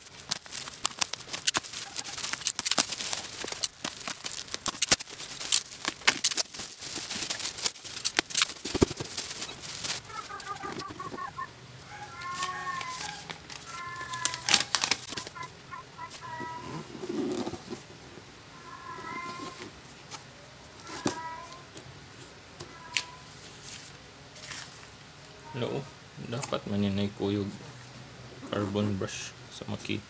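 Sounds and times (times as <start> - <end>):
bubble wrap crackling: 0.0 - 20.2, 22.7 - 25.0
bird calls: 9.4 - 17.3.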